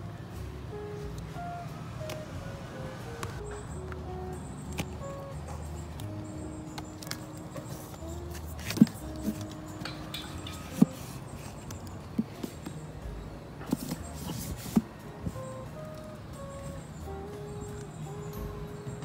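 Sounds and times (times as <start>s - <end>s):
soft background music: 0.0s - 19.0s.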